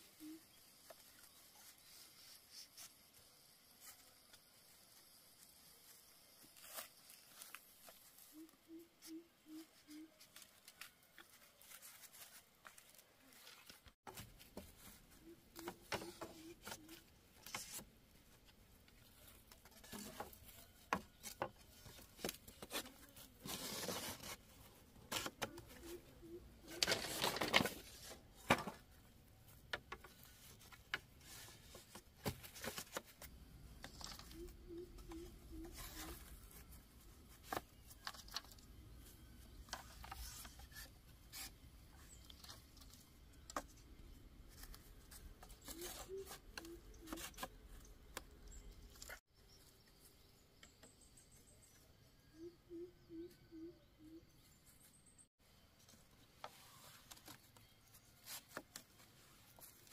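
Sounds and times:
rustling scrape: 22.6 - 25.4.

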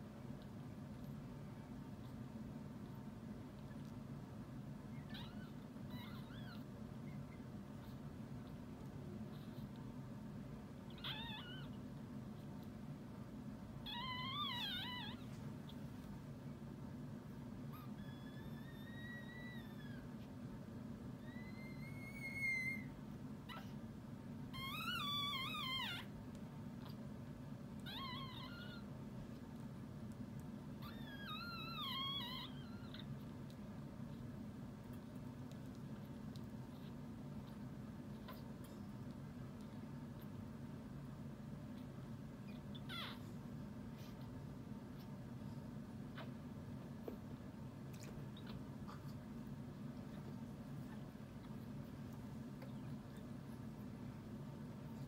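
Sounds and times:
low steady hum: 0.0 - 55.0
dog crying high and wavering: 17.7 - 20.1, 21.2 - 22.9, 30.8 - 33.1, 42.5 - 43.2.

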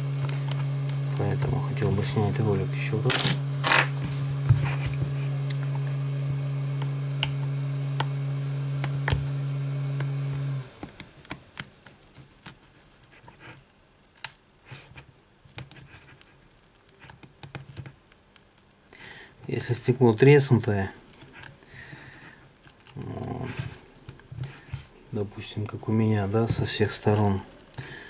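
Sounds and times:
steady low hum: 0.0 - 11.3, 18.9 - 28.0.

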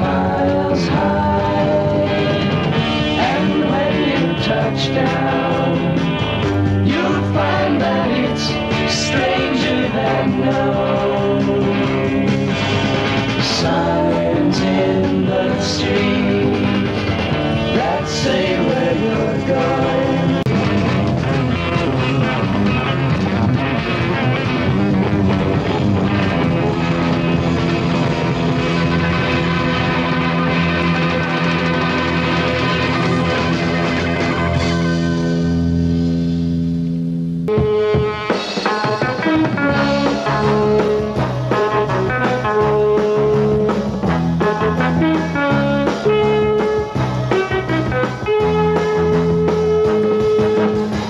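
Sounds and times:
instrumental rock guitar music: 0.0 - 51.0.

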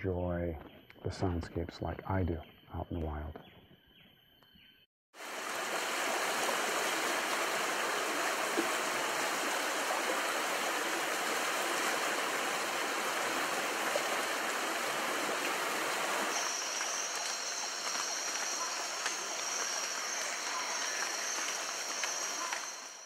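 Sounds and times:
stream rushing over rocks: 5.2 - 23.0.

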